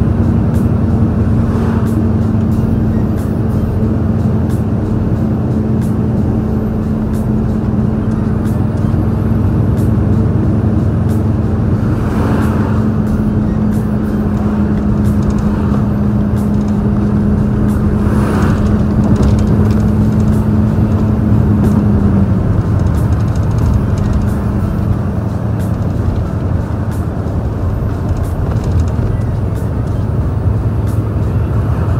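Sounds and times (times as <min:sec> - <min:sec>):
truck diesel engine droning: 0:00.0 - 0:31.9.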